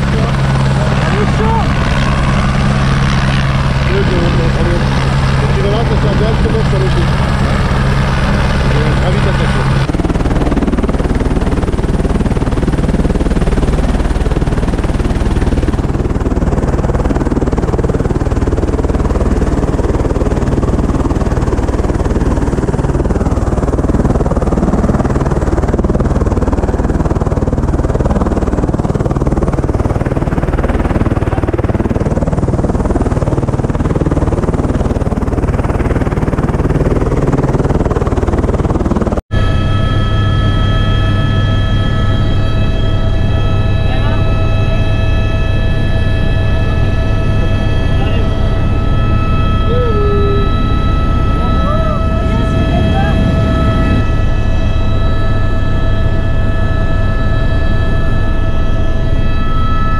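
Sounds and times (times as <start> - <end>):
helicopter rotor and turbine noise: 0.0 - 59.9
rotor downwash buffeting microphone: 47.3 - 54.7.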